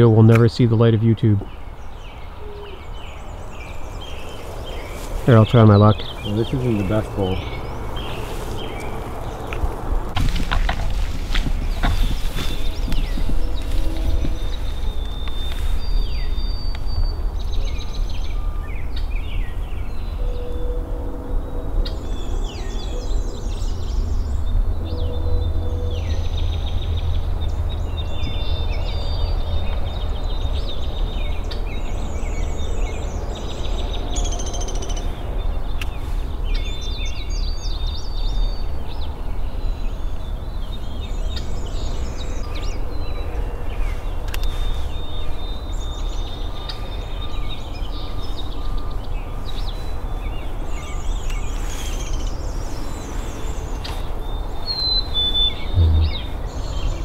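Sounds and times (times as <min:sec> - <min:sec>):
birds chirping and trilling: 0:00.0 - 0:57.0
steady low rumble: 0:02.9 - 0:20.0, 0:55.6 - 0:57.0.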